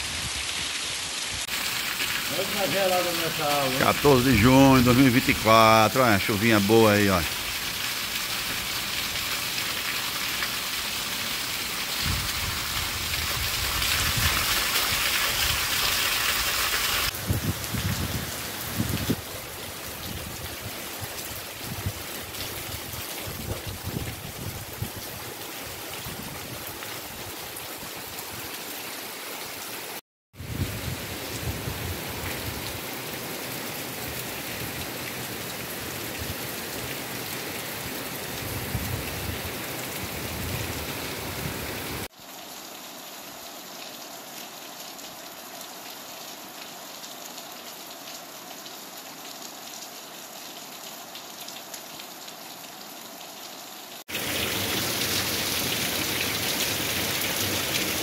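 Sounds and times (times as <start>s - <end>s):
steady rain splashing: 0.0s - 58.0s.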